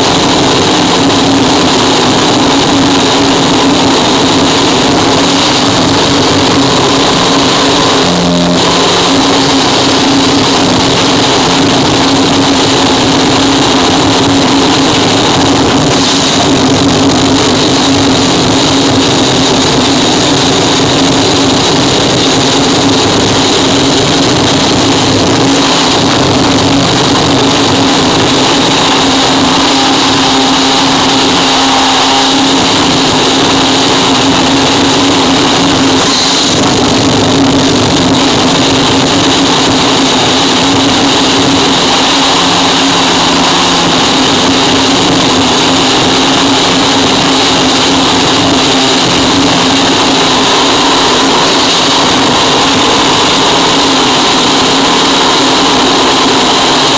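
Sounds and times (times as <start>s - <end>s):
distorted static noise: 0.0s - 56.9s.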